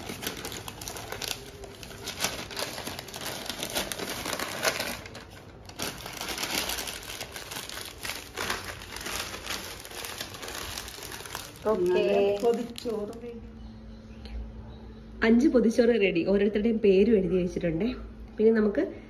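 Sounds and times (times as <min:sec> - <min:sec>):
leaf crinkling and rustling: 0:00.0 - 0:13.4.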